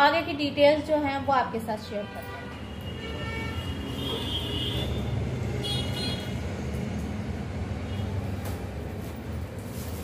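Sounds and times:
road traffic rumble: 0:00.0 - 0:10.0
distant vehicle horns: 0:02.0 - 0:06.5.

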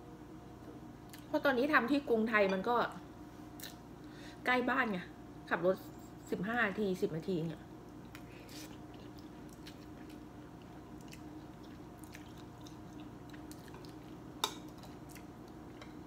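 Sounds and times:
steady low hum: 0:00.0 - 0:16.0
person chewing: 0:07.9 - 0:15.8.

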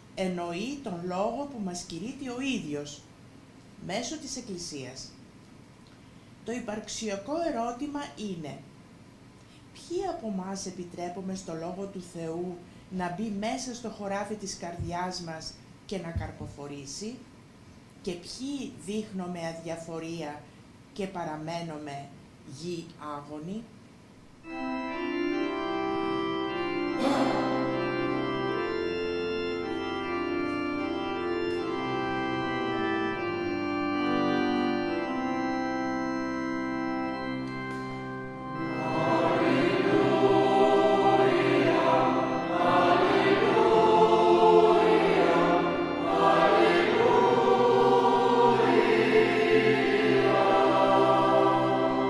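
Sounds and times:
organ chords: 0:00.0 - 0:01.6, 0:24.4 - 0:52.0
choir singing a hymn: 0:24.8 - 0:52.0.

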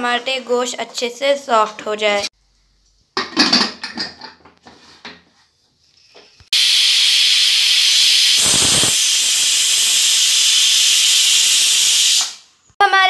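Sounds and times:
pressure cooker steam hiss: 0:06.5 - 0:12.6.

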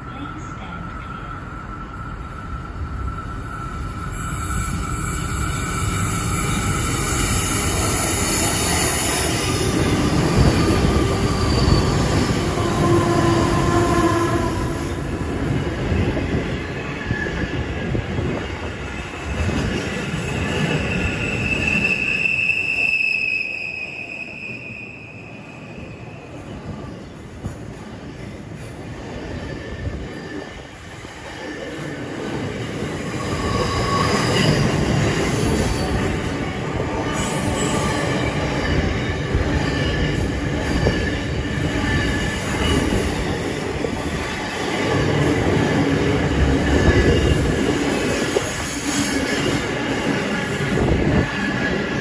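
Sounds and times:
freight train wheels rumbling: 0:00.0 - 0:52.0
high-pitched wheel squeal: 0:01.6 - 0:09.7, 0:10.9 - 0:15.0, 0:20.2 - 0:26.2.

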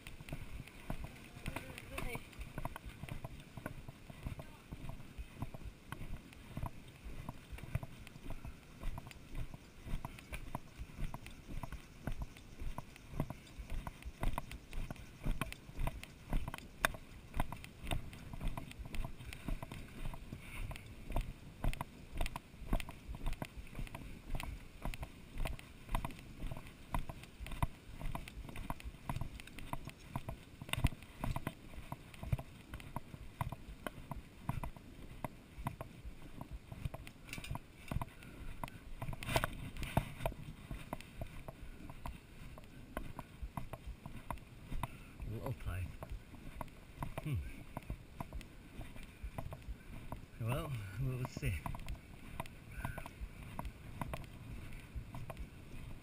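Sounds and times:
footsteps on wooden boardwalk: 0:00.0 - 0:56.0.

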